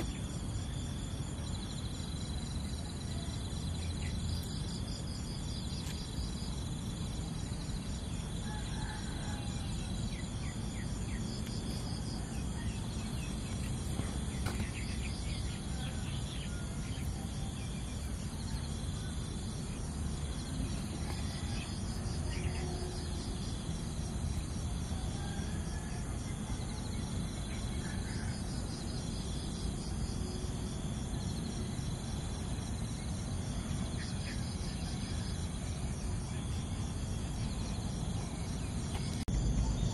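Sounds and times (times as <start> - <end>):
insects droning: 0.0 - 39.9.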